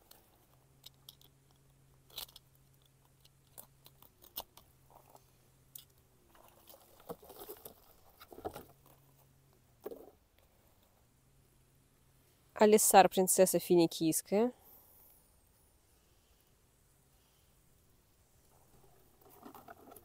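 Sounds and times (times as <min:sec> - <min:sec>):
faint low hum: 0:00.0 - 0:20.0.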